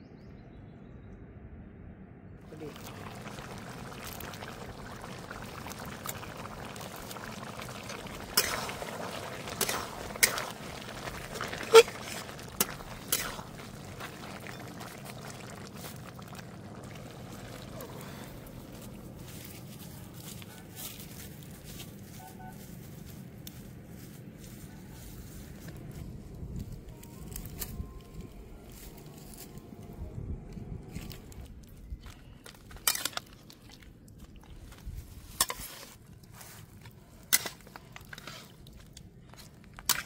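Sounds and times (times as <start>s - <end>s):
curry simmering and bubbling: 2.5s - 20.4s, 30.9s - 40.0s.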